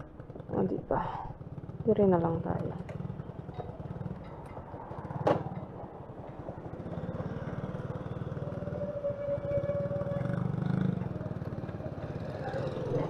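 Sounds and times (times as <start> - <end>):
scooter engine idling: 0.0 - 8.8, 9.8 - 13.0.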